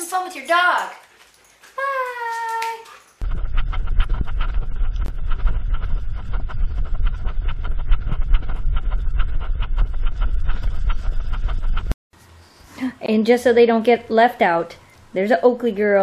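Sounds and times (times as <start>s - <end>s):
wind rumble on microphone: 3.2s - 12.0s.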